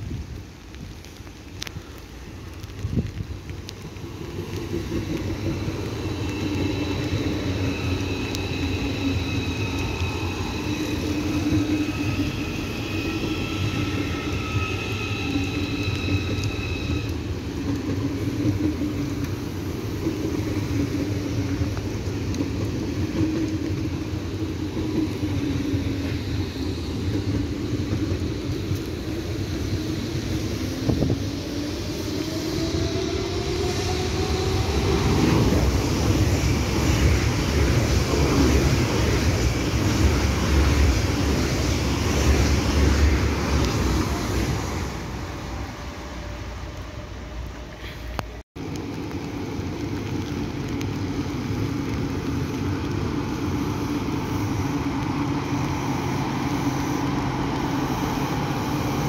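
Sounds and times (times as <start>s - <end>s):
high train whine: 0.0s - 59.0s
train rolling rumble: 0.0s - 59.0s.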